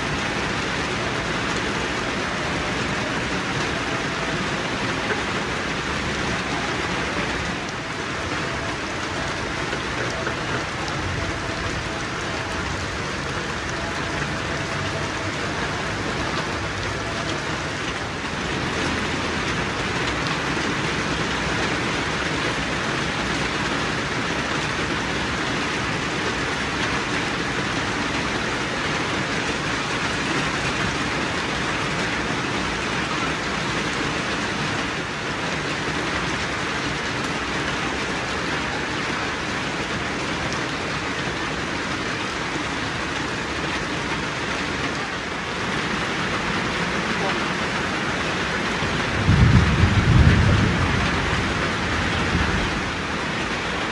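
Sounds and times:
steady rain falling: 0.0 - 53.9.

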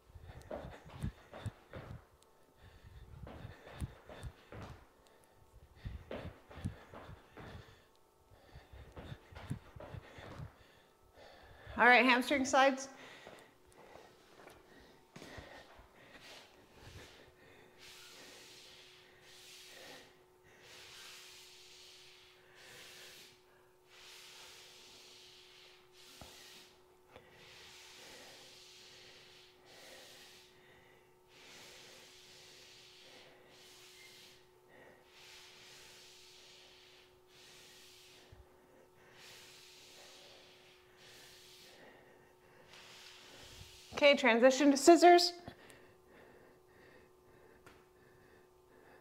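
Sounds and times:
woman breathing hard: 0.0 - 11.9, 12.9 - 44.0, 45.4 - 49.0
faint steady hum: 0.0 - 49.0
faint hissing swells: 16.2 - 30.6, 31.3 - 45.2.

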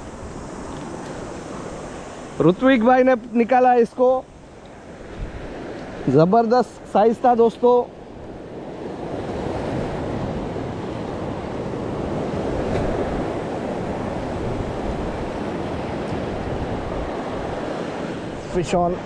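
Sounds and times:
sea waves breaking on rocks: 0.0 - 19.0.

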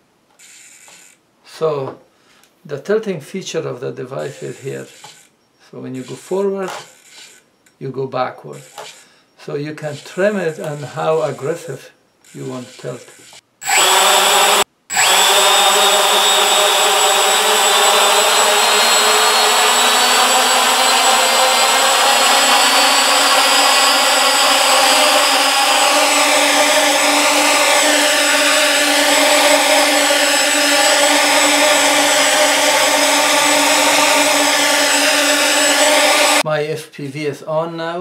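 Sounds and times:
quadcopter motors whining: 0.3 - 1.2, 4.2 - 5.4, 6.0 - 7.8, 8.5 - 9.2, 12.2 - 36.4.

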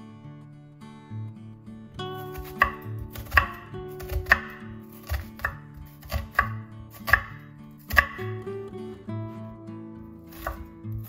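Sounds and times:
soft acoustic guitar music: 0.0 - 11.0
knife chopping onion on board: 2.3 - 8.3, 10.3 - 11.0.

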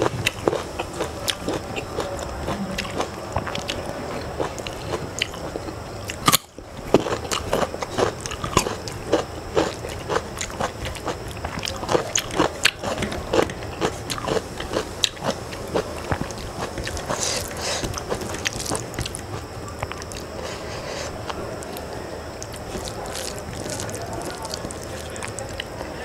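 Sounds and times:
chewing: 0.0 - 26.0
fingers squishing rice on plate: 13.8 - 25.8.

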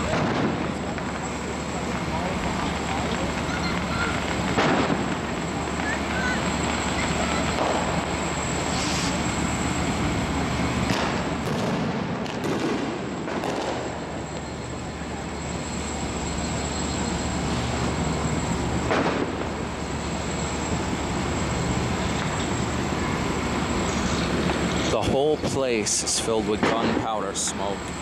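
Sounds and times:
firework bangs: 0.0 - 1.4, 3.1 - 6.4, 7.0 - 9.2, 10.9 - 14.2, 18.8 - 19.6, 26.6 - 27.5.

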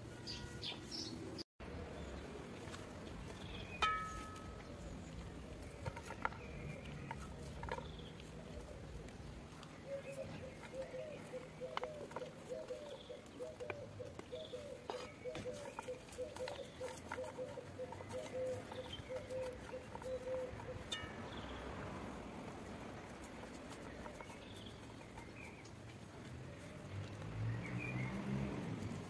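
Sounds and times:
ringing metal clink: 3.8 - 4.7.

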